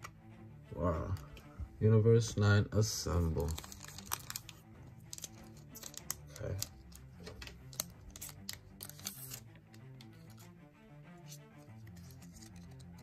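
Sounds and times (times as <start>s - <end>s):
quiet background music: 0.0s - 13.0s
foil pack crinkling: 3.3s - 9.4s.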